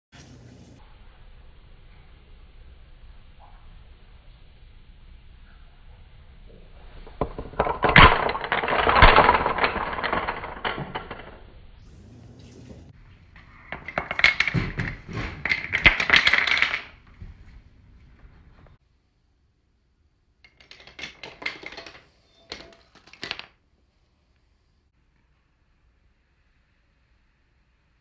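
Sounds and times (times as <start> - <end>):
wooden dominoes toppling: 7.0 - 12.3, 13.4 - 17.1, 20.5 - 23.6.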